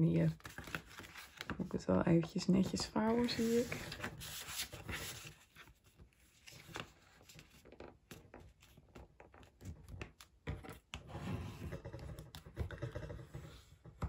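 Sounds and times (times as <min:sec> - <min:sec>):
paper crinkling: 0:00.2 - 0:10.3
paper rustling: 0:00.2 - 0:10.8.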